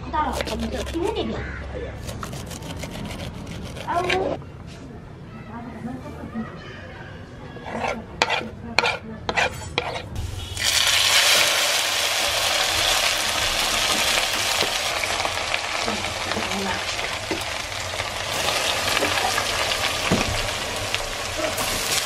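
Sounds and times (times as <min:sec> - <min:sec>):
knife on wooden cutting board: 0:00.3 - 0:01.1, 0:02.0 - 0:04.4, 0:07.6 - 0:10.1
hot oil sizzling in wok: 0:10.2 - 0:22.0.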